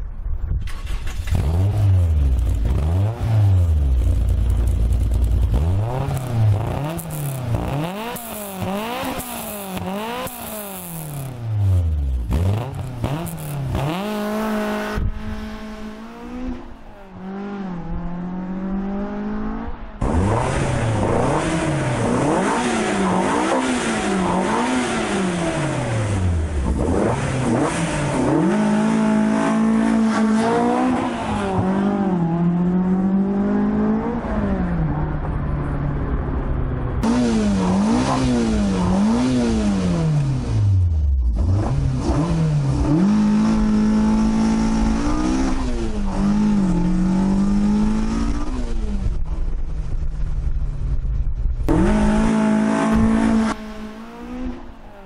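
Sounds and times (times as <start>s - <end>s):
car engine revving: 0.6s - 55.0s.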